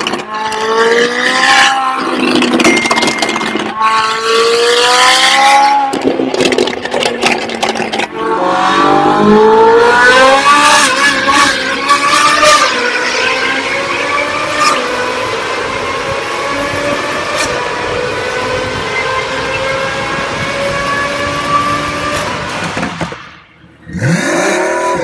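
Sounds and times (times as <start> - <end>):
sports car exhaust revving and popping: 0.0 - 25.0
car engine accelerating through gears: 7.8 - 22.8, 23.8 - 25.0.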